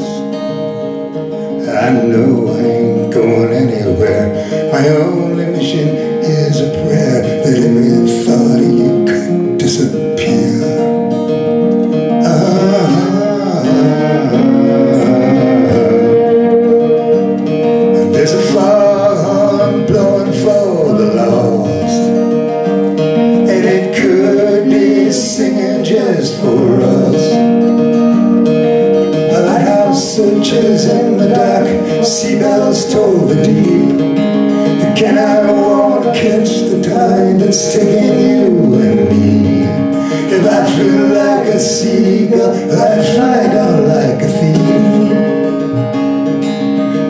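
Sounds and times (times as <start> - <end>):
man singing: 0.0 - 0.8, 1.5 - 11.2, 12.1 - 22.3, 23.3 - 27.5, 29.1 - 46.0
strummed acoustic guitar: 0.0 - 47.0
violin: 11.7 - 23.4
woman singing harmony: 12.2 - 19.8, 29.3 - 33.9, 34.8 - 39.4.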